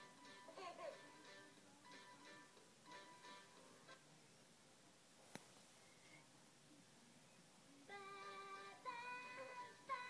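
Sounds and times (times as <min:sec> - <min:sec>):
children's song from small speaker: 0:00.0 - 0:03.6, 0:07.8 - 0:10.0.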